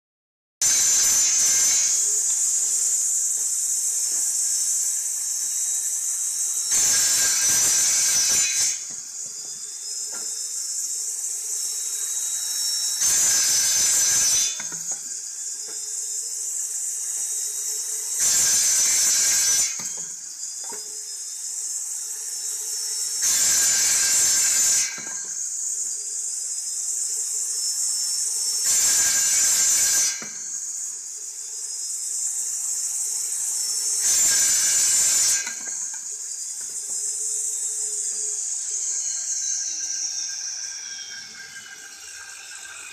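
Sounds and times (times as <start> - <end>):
saw cutting through bamboo: 0.6 - 15.9, 16.5 - 20.0, 22.4 - 25.6, 28.6 - 30.6, 33.6 - 42.9
saw disc whining: 0.6 - 42.9.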